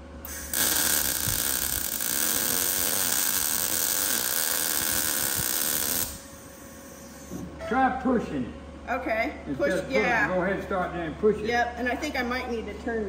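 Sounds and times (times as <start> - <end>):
welding arc crackling: 0.0 - 6.5.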